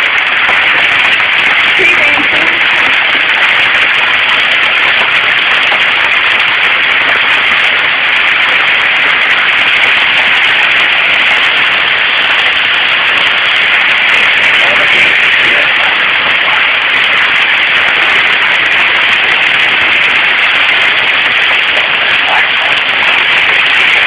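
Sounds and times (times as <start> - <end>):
hail and heavy rain: 0.0 - 24.0.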